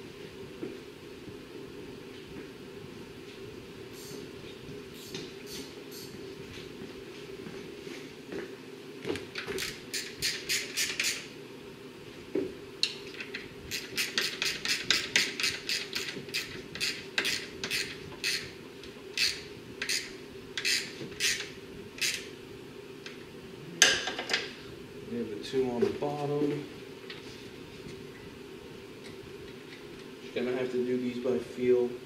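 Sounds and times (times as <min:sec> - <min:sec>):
steady low hum: 0:00.0 - 0:32.0
ratchet wrench clicking: 0:13.7 - 0:18.4, 0:19.2 - 0:22.3.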